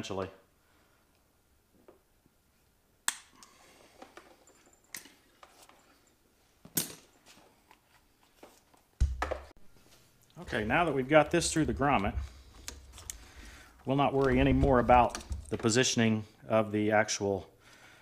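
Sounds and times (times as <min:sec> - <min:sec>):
rustling: 0:03.6 - 0:15.8.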